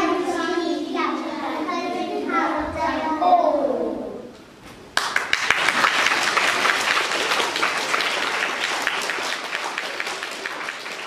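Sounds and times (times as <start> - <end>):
young children applauding: 5.0 - 11.0.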